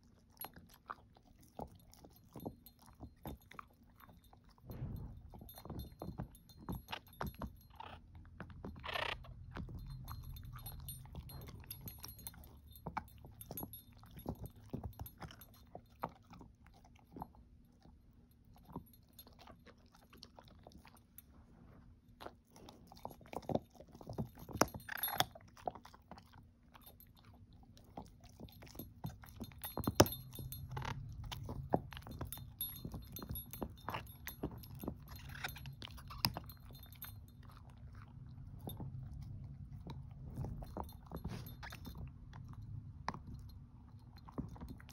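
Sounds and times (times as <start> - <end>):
dog chewing hard treat: 0.0 - 21.3, 22.1 - 44.9
collar tags jingling: 1.6 - 16.4, 22.9 - 25.4, 26.7 - 44.9.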